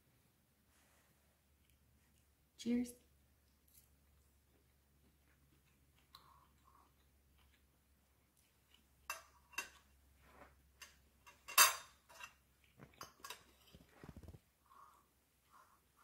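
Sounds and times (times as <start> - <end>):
cutlery clinking on a plate: 9.0 - 10.0, 10.8 - 13.5.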